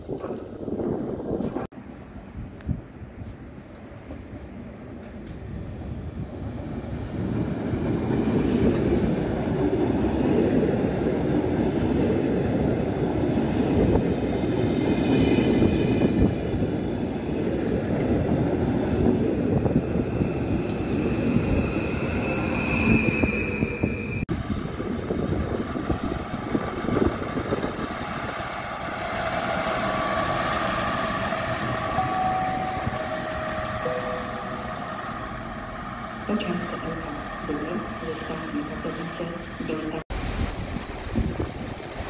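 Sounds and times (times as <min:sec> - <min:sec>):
train wheels rumbling on rail: 0:02.4 - 0:42.0
high wheel squeal: 0:21.2 - 0:24.2.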